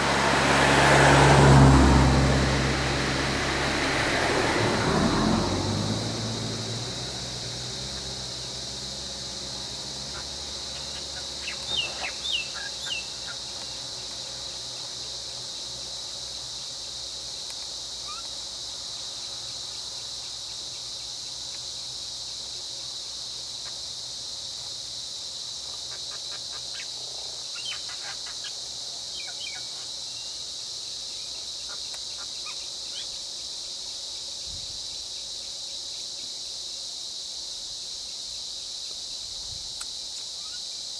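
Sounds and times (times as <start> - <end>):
vehicle engine hum: 0.0 - 22.3
insects droning: 0.0 - 40.9
bird chirping: 10.1 - 13.7.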